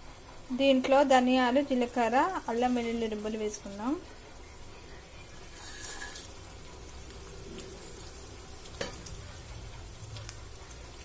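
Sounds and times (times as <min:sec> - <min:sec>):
oil sizzling in a pan: 0:00.0 - 0:11.0.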